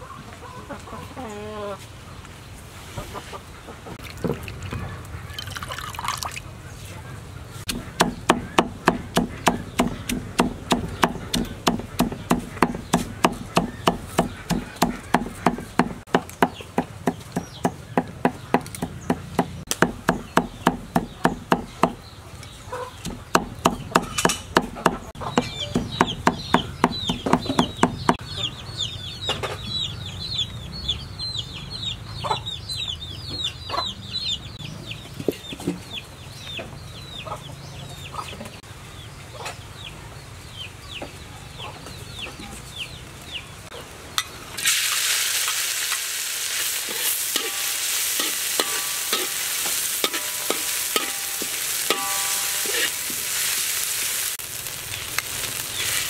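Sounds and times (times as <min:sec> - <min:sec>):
bird chirping rapidly: 0:07.4 - 0:37.4
knife chopping on wooden block: 0:07.7 - 0:22.0, 0:23.0 - 0:28.2.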